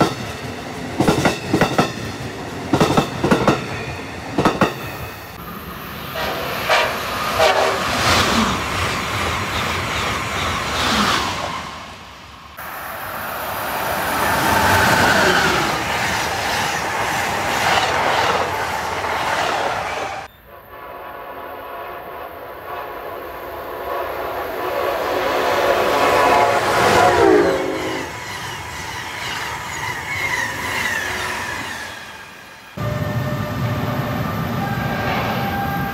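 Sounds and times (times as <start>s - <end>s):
passenger train rushing past: 0.0s - 35.9s
train air horn: 6.0s - 8.0s, 20.5s - 28.1s, 32.8s - 35.9s.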